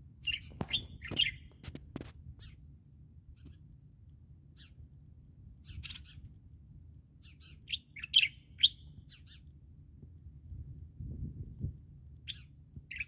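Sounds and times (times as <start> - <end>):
low background rumble: 0.0 - 13.0
small birds chirping: 0.2 - 1.6, 2.4 - 2.6, 4.5 - 4.8, 5.6 - 6.3, 7.2 - 9.5, 12.2 - 13.0.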